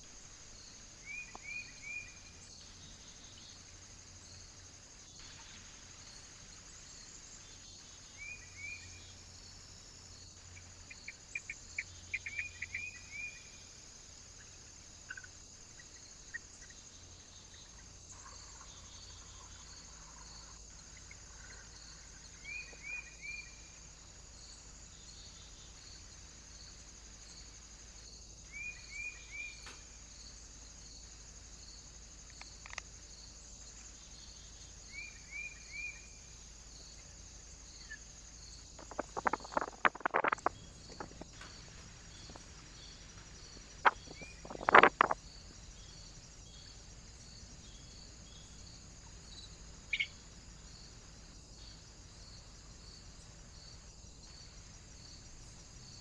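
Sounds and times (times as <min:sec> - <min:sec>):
crickets chirring: 0:00.0 - 0:56.0
small birds chirping: 0:10.1 - 0:13.6, 0:33.6 - 0:50.2.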